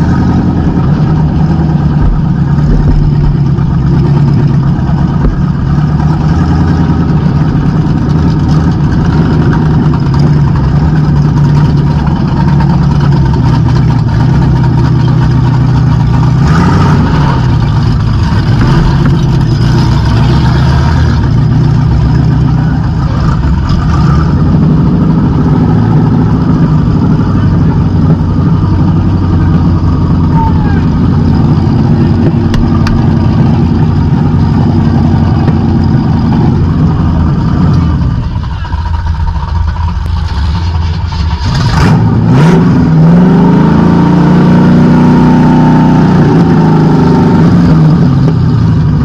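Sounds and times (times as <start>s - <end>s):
car engine running through open exhaust: 0.0s - 49.0s.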